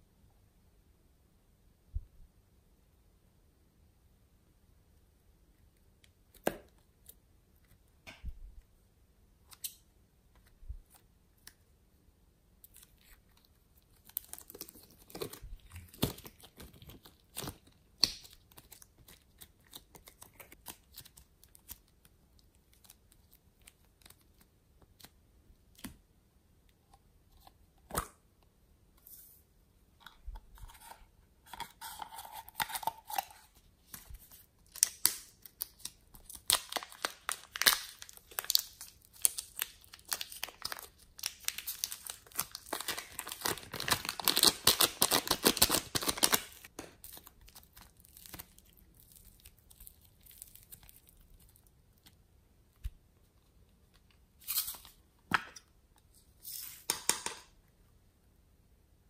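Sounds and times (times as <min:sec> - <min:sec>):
plastic wrapping crinkling: 0:31.5 - 0:52.2.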